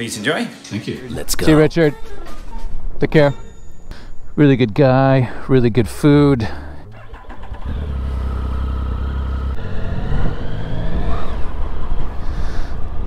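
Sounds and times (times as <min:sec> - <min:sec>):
motorcycle engine idling and revving: 0:05.6 - 0:13.0.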